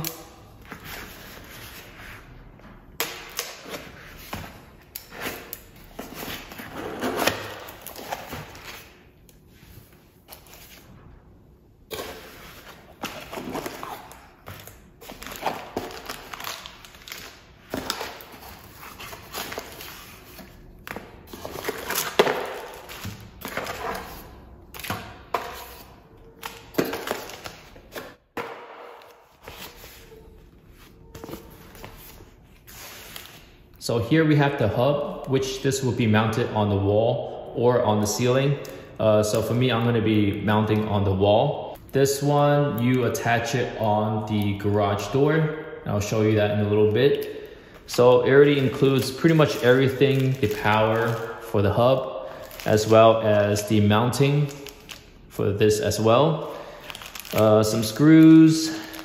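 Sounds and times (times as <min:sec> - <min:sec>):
cardboard and plastic rustling: 0:56.8 - 0:59.0.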